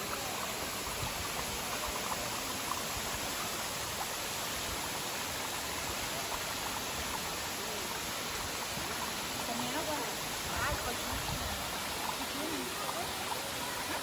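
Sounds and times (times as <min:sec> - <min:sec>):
water rushing: 0:00.0 - 0:14.0.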